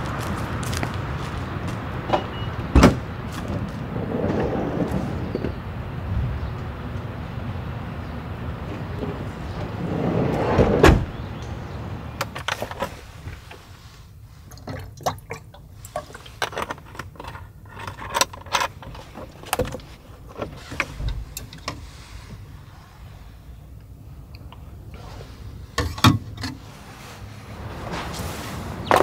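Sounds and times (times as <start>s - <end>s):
sliding door closing with thud: 2.1s - 6.4s, 8.6s - 12.4s.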